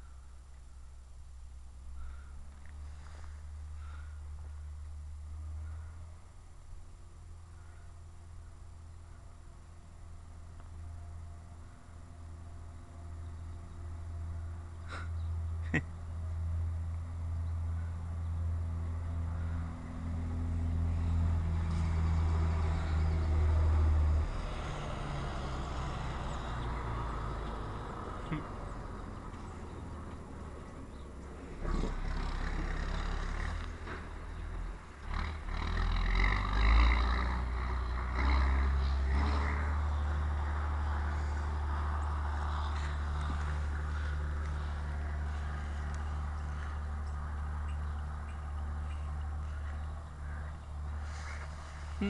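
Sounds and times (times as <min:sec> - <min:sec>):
idling vehicle engine hum: 0:00.0 - 0:52.0.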